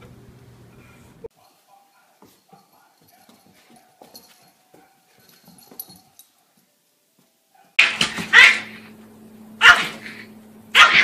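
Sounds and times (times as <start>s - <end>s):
dog barking: 1.3s - 5.4s, 7.5s - 8.9s, 9.6s - 11.0s.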